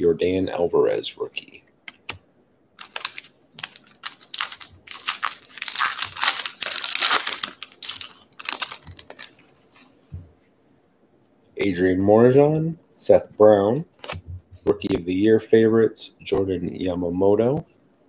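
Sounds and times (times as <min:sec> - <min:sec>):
foil wrapper tearing and crinkling: 0:02.8 - 0:09.4.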